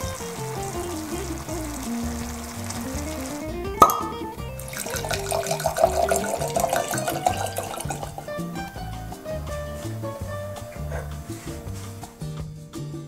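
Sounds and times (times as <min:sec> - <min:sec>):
wine pouring into a glass: 0:00.0 - 0:08.8
background music: 0:00.0 - 0:13.0.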